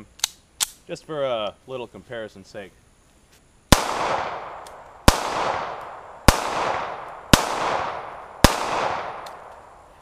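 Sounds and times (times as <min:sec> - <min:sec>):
pistol shots with echo: 0:03.7 - 0:09.7.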